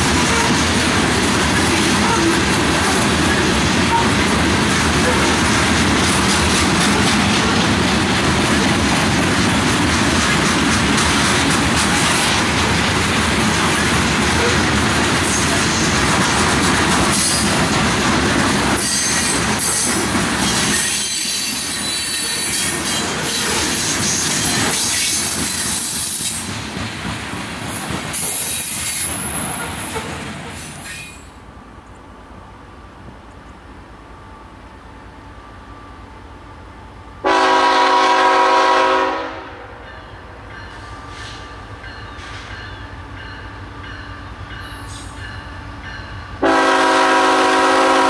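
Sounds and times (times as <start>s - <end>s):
freight train wheels rumbling: 0.0s - 48.0s
high wheel squeal: 18.8s - 26.9s.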